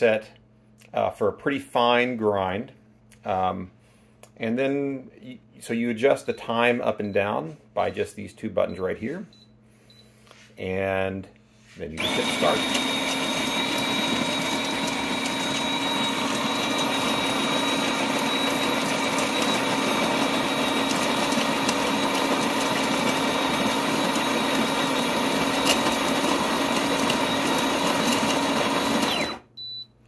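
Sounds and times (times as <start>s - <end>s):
coffee grinder running: 12.0s - 29.5s.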